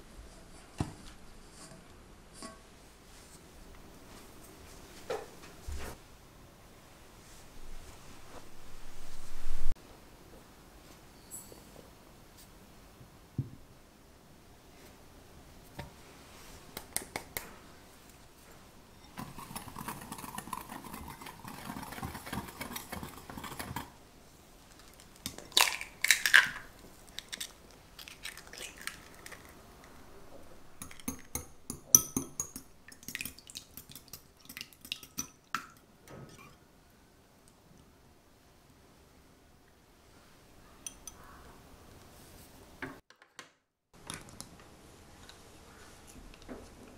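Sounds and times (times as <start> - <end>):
glass clinks: 11.2 - 11.7.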